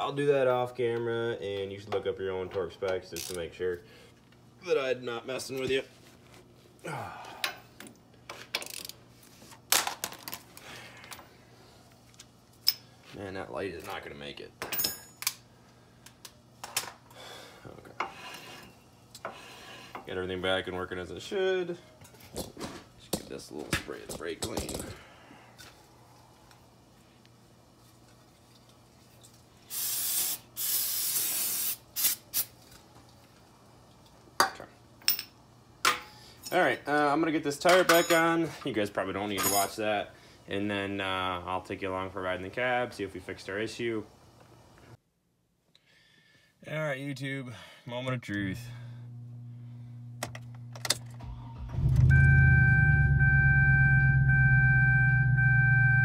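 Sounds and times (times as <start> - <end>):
metal tools clinking and knocking: 14.6 - 15.3, 24.1 - 25.0, 37.6 - 38.5, 39.3 - 39.8
aerosol can spraying: 29.7 - 32.5
short falling hum: 51.4 - 56.0.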